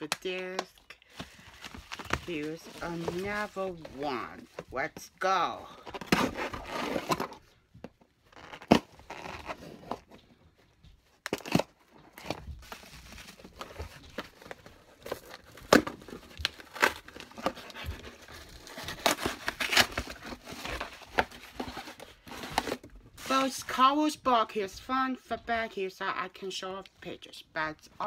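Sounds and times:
cardboard box tearing: 5.8s - 7.4s, 8.3s - 10.0s, 11.3s - 23.6s.

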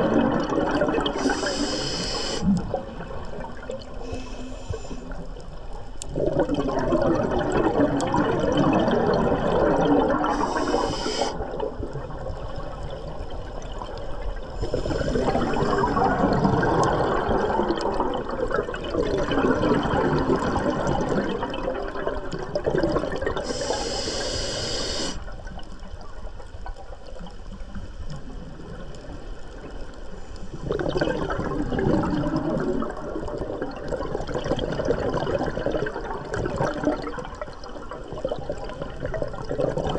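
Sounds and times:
exhaled bubbles gurgling underwater: 0.0s - 39.9s
regulator air hiss on inhale: 1.1s - 2.7s, 4.0s - 5.4s, 10.3s - 11.6s, 14.5s - 16.0s, 23.4s - 25.4s.

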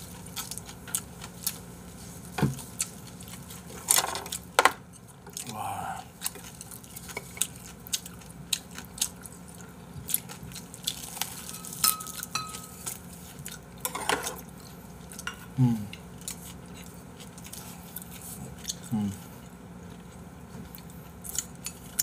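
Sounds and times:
short low vocal sound: 5.4s - 6.1s
utensils clinking against dishes: 11.4s - 13.0s, 13.8s - 14.4s.

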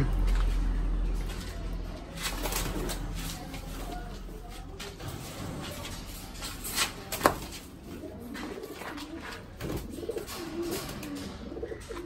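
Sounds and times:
pigeons cooing: 7.5s - 12.0s.

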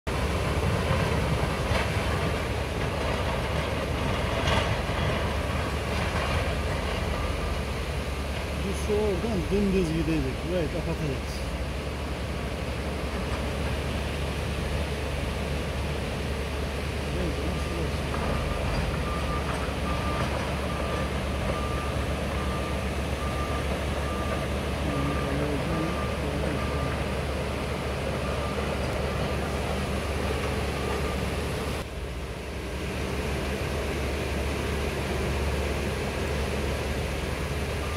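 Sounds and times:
river rushing: 0.1s - 37.9s
reversing alarm beeping: 6.3s - 11.3s, 17.2s - 31.6s, 37.7s - 37.9s.

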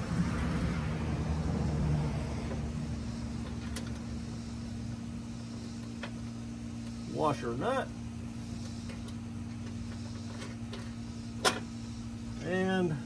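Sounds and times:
car passing: 0.0s - 3.4s
low vehicle hum: 0.0s - 13.0s.

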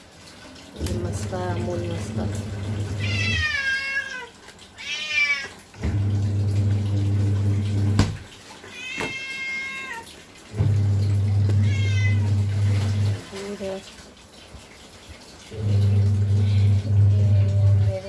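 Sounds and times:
washing machine motor hum: 0.0s - 18.0s
cat meowing: 3.0s - 5.6s, 8.7s - 10.1s, 11.5s - 12.3s.

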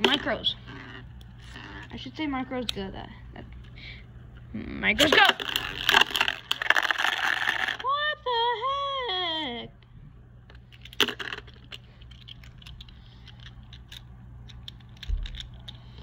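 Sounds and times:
plastic tops clacking: 5.0s - 7.9s, 10.7s - 15.8s.

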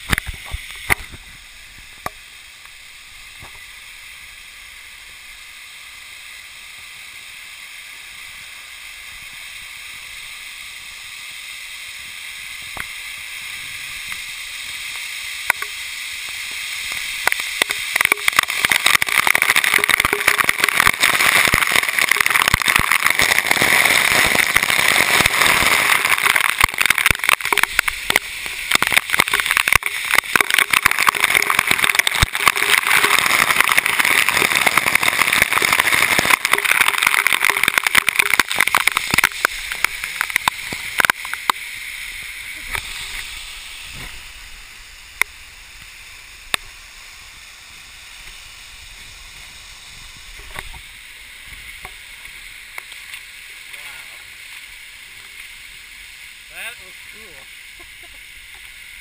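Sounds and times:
waterfall rushing and crashing: 0.0s - 59.0s
water drops clicking on camera: 15.5s - 15.8s, 17.2s - 23.5s, 24.3s - 41.6s.

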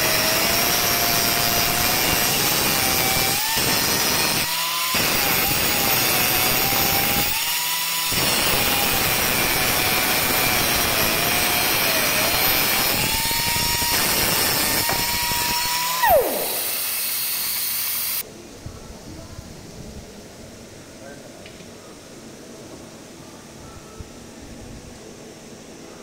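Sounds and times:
pneumatic saw cutting stone: 0.0s - 18.2s.

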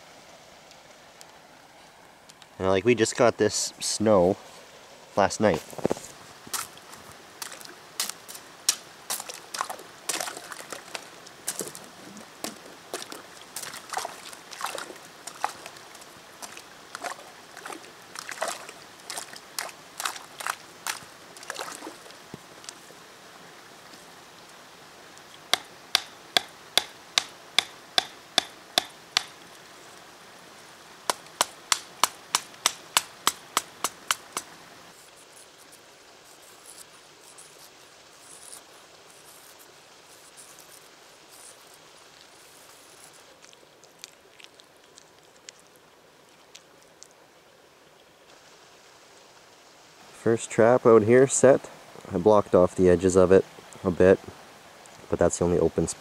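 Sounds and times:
water sloshing and trickling: 5.5s - 24.6s.

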